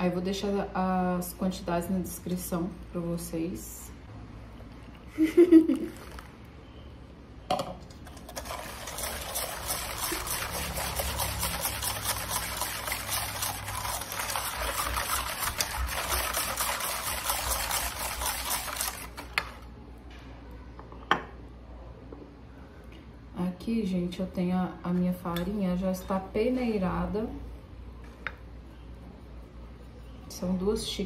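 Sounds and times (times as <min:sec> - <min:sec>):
whisk beating batter in bowl: 0:08.1 - 0:19.6.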